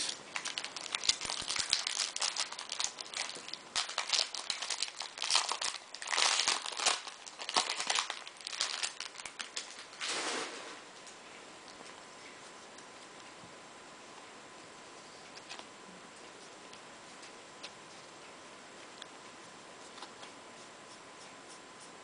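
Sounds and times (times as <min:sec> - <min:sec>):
foil wrapper tearing and crinkling: 0:00.0 - 0:10.4.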